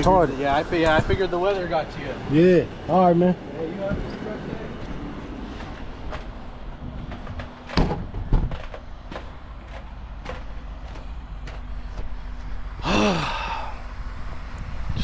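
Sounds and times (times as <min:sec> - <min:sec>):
metal door slamming shut: 0:07.6 - 0:08.7
man sighing: 0:12.8 - 0:13.9.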